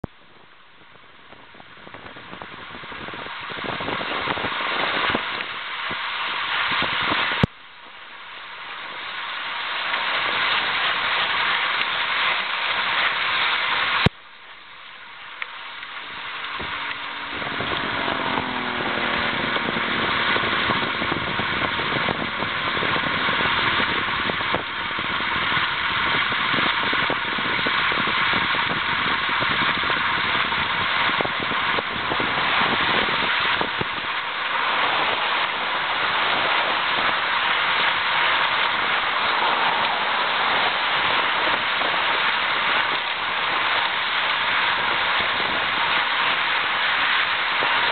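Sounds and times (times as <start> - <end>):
wind rush: 0.8 - 7.5, 15.2 - 47.9
road noise: 12.8 - 47.9
falling hum: 14.2 - 26.3.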